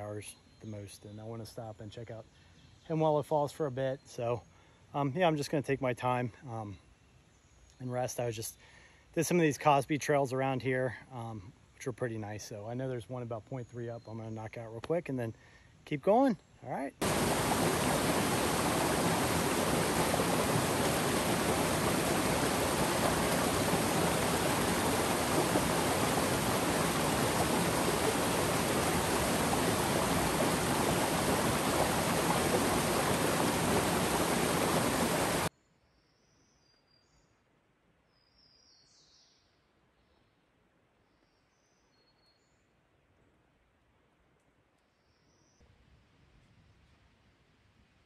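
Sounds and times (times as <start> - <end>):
faint bird chirp: 0.0 - 9.5, 34.1 - 37.5, 38.1 - 42.8, 44.8 - 45.7
water flowing: 17.0 - 35.5.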